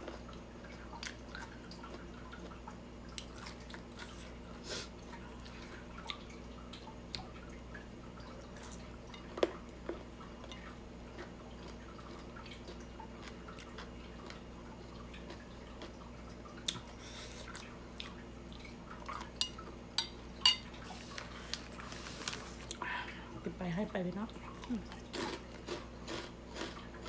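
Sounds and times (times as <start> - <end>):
person chewing: 0.0 - 6.2, 9.4 - 18.2, 24.5 - 27.0
steady low hum: 0.0 - 27.0.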